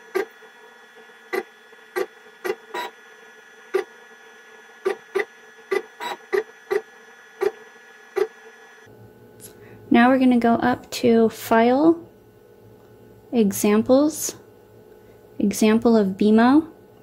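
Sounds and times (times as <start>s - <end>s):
gantry motors buzzing: 0.0s - 8.9s
faint machine hum: 0.0s - 17.0s.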